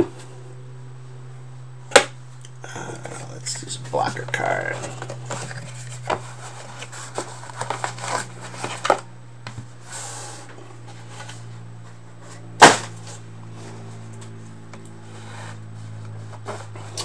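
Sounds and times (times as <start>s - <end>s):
case set down with sharp knock: 12.6s - 13.0s.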